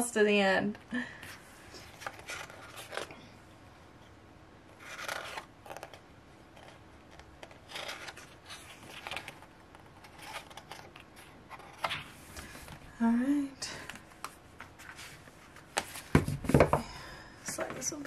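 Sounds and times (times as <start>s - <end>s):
book pages turning: 1.6s - 3.3s, 4.7s - 12.8s, 13.9s - 16.3s.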